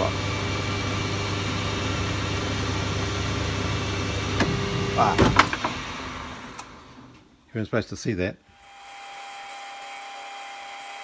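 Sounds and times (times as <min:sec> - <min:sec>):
lathe machine hum: 0:00.0 - 0:07.1.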